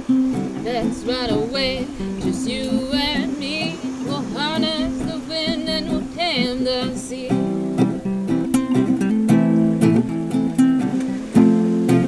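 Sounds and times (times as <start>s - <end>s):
person singing: 0.0s - 7.9s
acoustic guitar strumming: 0.0s - 12.0s.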